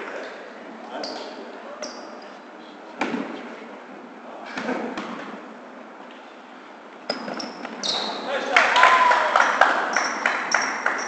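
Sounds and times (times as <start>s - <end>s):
sneaker squeaks: 0.9s - 3.5s, 7.0s - 8.5s, 9.9s - 11.0s.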